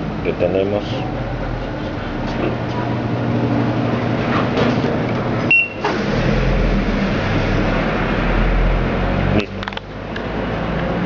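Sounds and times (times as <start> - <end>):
washing machine motor hum: 0.0 - 9.1
short high beep: 5.5 - 5.8.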